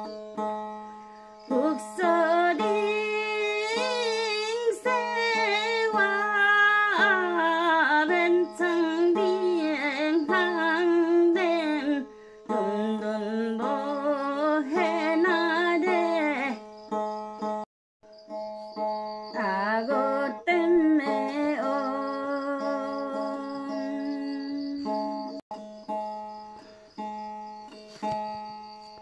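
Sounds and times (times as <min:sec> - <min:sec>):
plucked one-string instrument: 0:00.0 - 0:29.0
woman singing: 0:01.5 - 0:16.6, 0:19.4 - 0:25.4.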